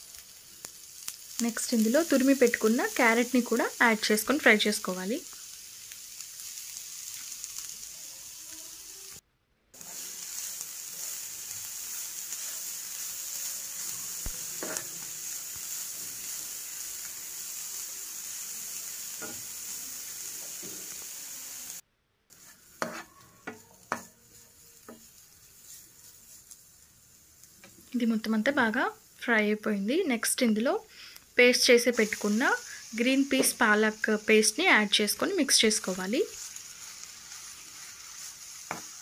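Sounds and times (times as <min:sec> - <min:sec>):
vegetables sizzling in a pan: 0:00.0 - 0:09.2, 0:09.8 - 0:39.0
spoon knocking pan: 0:22.8 - 0:24.2.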